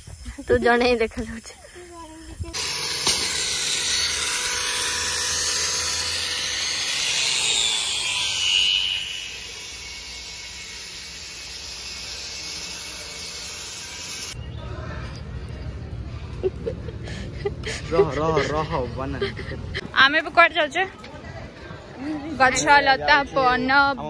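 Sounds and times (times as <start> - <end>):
power tool cutting steel bar: 2.5 - 14.4.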